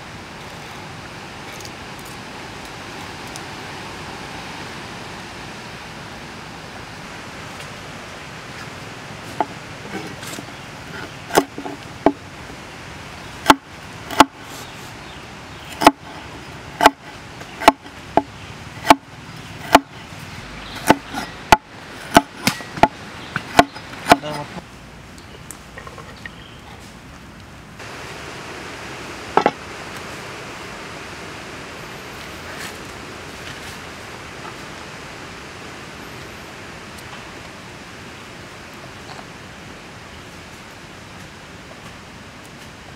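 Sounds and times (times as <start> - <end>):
cleaver chopping on wooden block: 11.3 - 12.2, 15.8 - 16.0, 16.8 - 17.0, 17.6 - 18.3, 19.7 - 19.9, 20.8 - 24.4.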